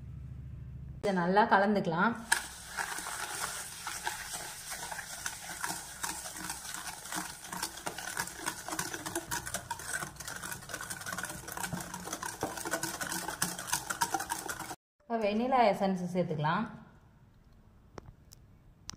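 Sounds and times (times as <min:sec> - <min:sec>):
whisk clicking against metal bowl: 0:02.3 - 0:14.8.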